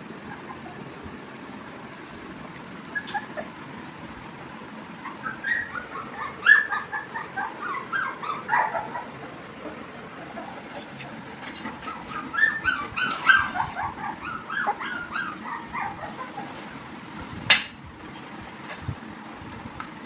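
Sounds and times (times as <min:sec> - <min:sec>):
puppies whimpering and yipping: 0:00.0 - 0:01.0, 0:02.8 - 0:03.7, 0:05.0 - 0:11.0, 0:11.6 - 0:16.8.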